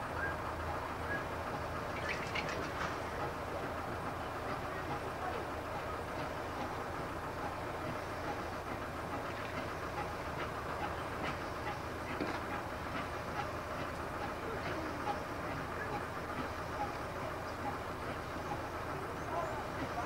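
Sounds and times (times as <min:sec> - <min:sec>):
faint clicks and clanks: 0:02.0 - 0:03.8, 0:07.4 - 0:18.7.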